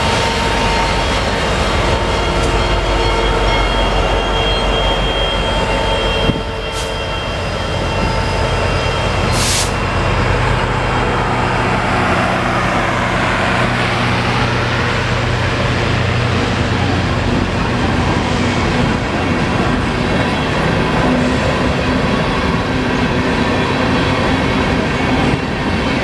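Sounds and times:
diesel locomotive engine droning: 0.0 - 26.0
train wheels rumbling on rail: 0.0 - 26.0
air hiss: 9.3 - 9.8.

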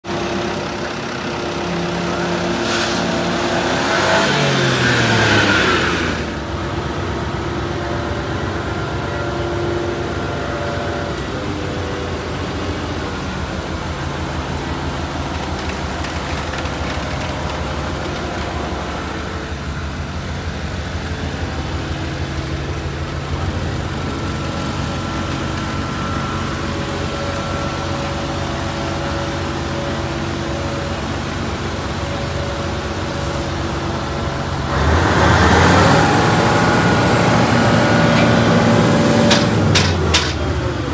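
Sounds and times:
small truck engine idling: 0.0 - 3.8, 4.4 - 40.9.

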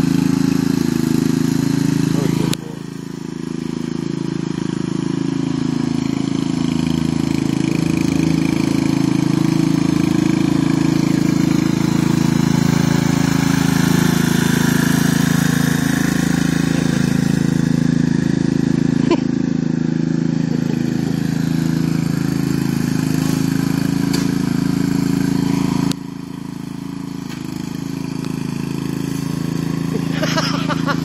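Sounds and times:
riding lawn mower engine: 0.0 - 31.0.

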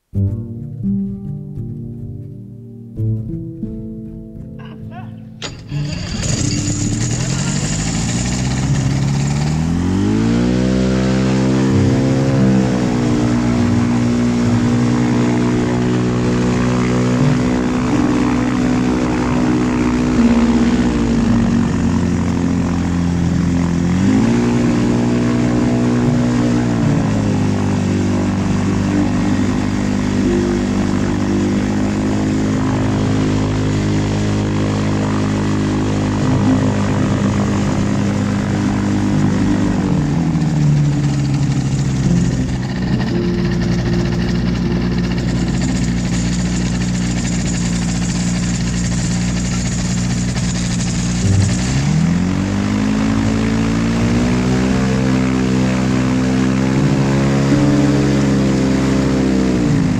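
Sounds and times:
light aircraft engine and propeller: 5.4 - 59.9.

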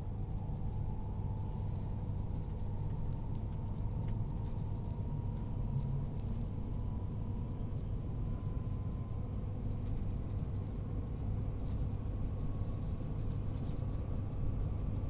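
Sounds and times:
faint light ticks: 2.4 - 4.2.

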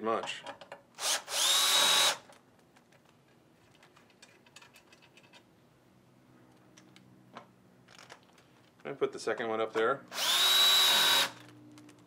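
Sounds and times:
power drill whining: 1.0 - 2.2, 10.1 - 11.5
faint clicks of parts handled: 2.2 - 5.5, 6.4 - 9.9.

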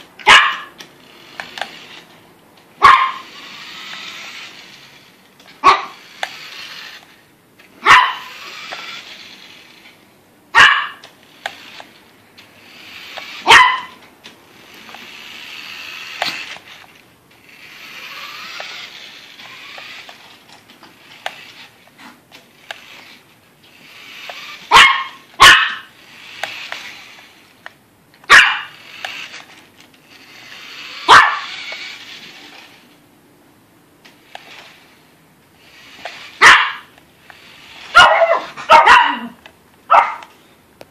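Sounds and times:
toy car motor whirring: 0.0 - 10.1, 10.9 - 33.0, 34.1 - 38.8
dog barking: 0.2 - 0.7, 2.8 - 3.3, 5.6 - 6.0, 7.8 - 8.3, 10.6 - 11.0, 13.4 - 14.0, 24.7 - 25.9, 28.3 - 28.7, 31.1 - 31.5, 36.4 - 36.9, 37.9 - 40.3.

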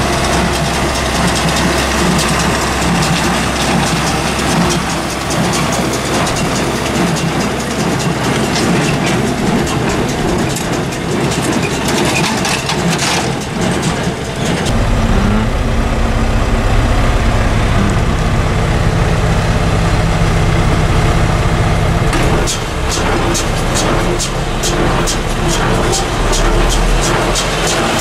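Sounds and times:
baler mechanical clatter: 0.0 - 28.0
tractor diesel engine drone: 0.0 - 28.0.

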